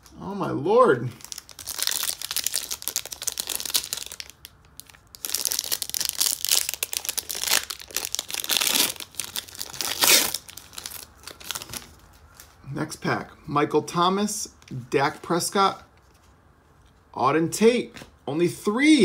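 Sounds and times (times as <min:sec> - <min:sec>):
foil wrapper crinkling and tearing: 0:01.2 - 0:12.4.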